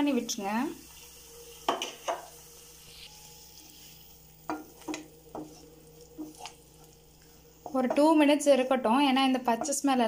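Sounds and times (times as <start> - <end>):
frying sizzle: 0.0 - 10.0
spatula scraping frying pan: 0.9 - 8.2.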